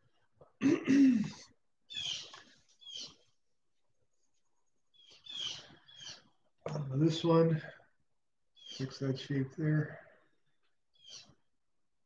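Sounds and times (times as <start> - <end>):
pet birds chirping: 1.8 - 3.4, 4.7 - 6.5, 8.5 - 9.1, 10.9 - 11.5.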